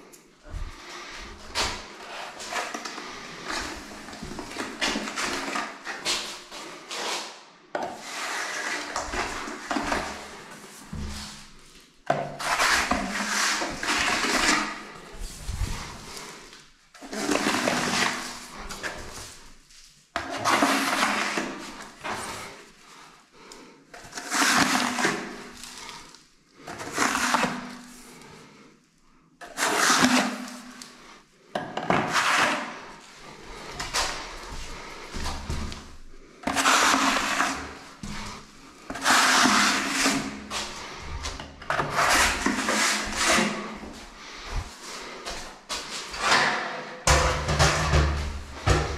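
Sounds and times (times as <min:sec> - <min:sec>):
steel blade scraping wet compound: 0:08.0 - 0:10.5, 0:12.4 - 0:15.0, 0:20.2 - 0:22.5, 0:24.0 - 0:26.0, 0:29.4 - 0:31.1, 0:32.0 - 0:35.8, 0:36.4 - 0:48.9.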